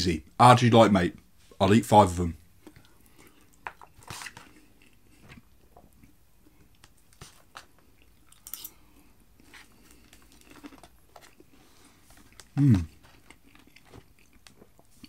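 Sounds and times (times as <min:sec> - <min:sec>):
faint chewing: 0:02.6 - 0:15.0.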